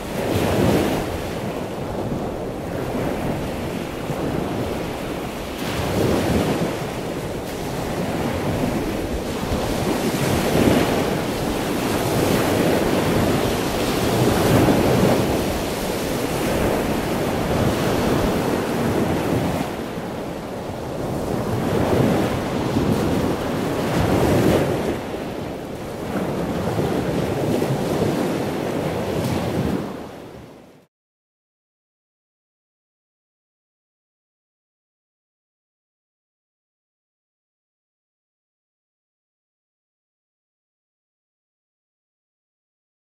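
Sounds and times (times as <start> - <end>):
surf breaking on a beach: 0.0 - 30.9.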